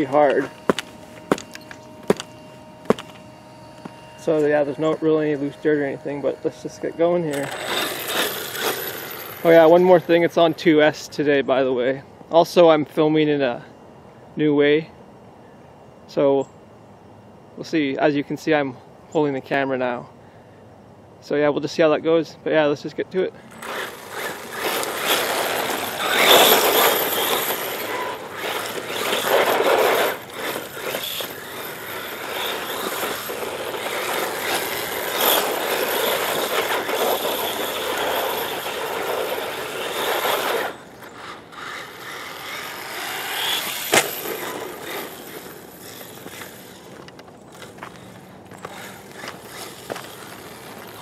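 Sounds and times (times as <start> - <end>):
thin high whine: 0.0 - 16.6, 22.9 - 51.0
rc car tyres rattling over dirt: 4.2 - 10.7, 23.5 - 51.0.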